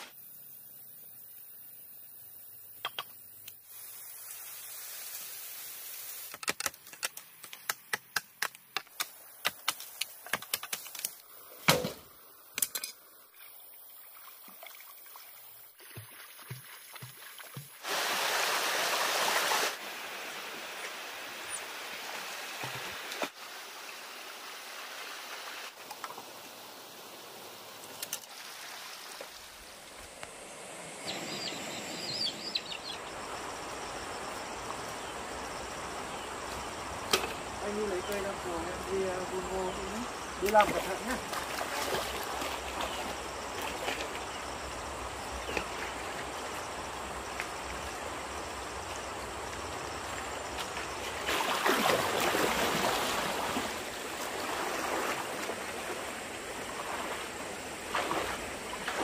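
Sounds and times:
running water: 0:13.2 - 0:34.9, 0:37.2 - 0:59.0
water rushing: 0:14.0 - 0:34.9, 0:37.6 - 0:59.0.

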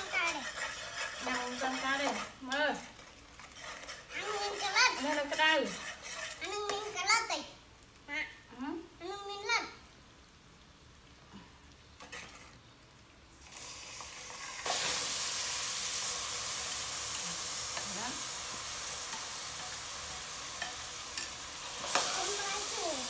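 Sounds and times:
ladle scraping and stirring: 0:00.0 - 0:07.0, 0:12.0 - 0:12.6, 0:16.5 - 0:22.5
hot oil sizzling: 0:00.0 - 0:23.0.

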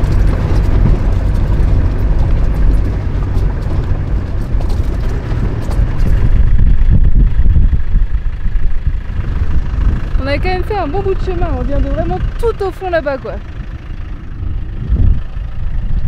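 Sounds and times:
small clicks and rattles: 0:00.0 - 0:06.6
engine and road rumble: 0:00.0 - 0:16.0.

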